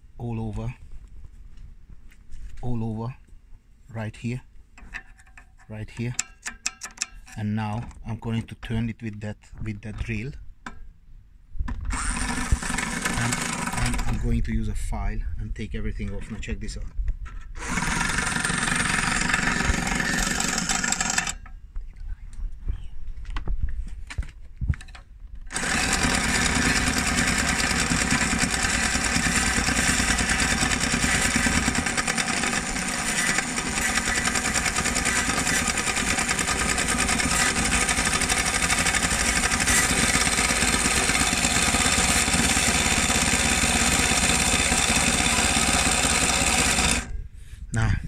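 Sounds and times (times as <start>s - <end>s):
file scraping commutator: 11.9s - 14.2s, 17.6s - 21.4s, 25.5s - 47.1s
vacuum motor spinning: 11.9s - 14.2s, 17.6s - 21.4s, 25.5s - 47.1s.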